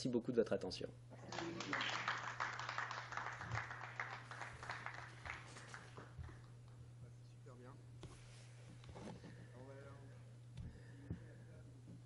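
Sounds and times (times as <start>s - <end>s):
steady low hum: 0.0s - 12.0s
audience applauding: 1.2s - 6.6s.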